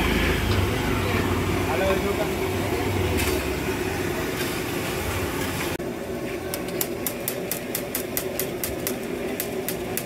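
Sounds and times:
metal spatula tapping griddle: 6.5s - 10.0s.

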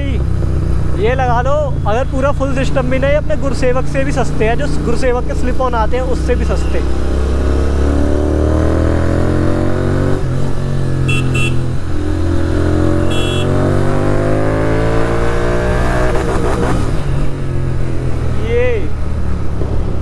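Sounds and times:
motorcycle accelerating hard: 3.1s - 20.0s
horn beeping: 11.0s - 11.8s, 13.0s - 13.6s.

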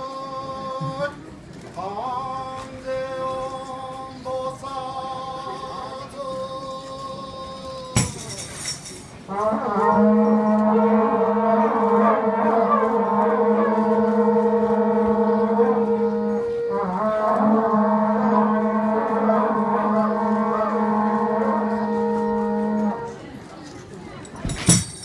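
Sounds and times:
conch shell trumpets blowing: 8.0s - 23.3s.

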